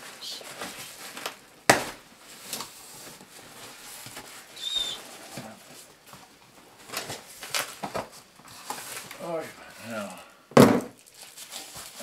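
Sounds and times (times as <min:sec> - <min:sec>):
cardboard and tape rustling: 0:00.0 - 0:10.0, 0:10.7 - 0:12.0
short high squeak: 0:04.6 - 0:05.0.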